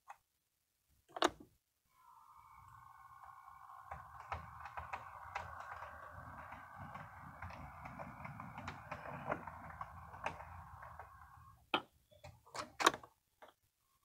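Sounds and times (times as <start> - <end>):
model train motor hum: 1.9 - 11.6
wheels clicking over rail joints: 2.6 - 11.6.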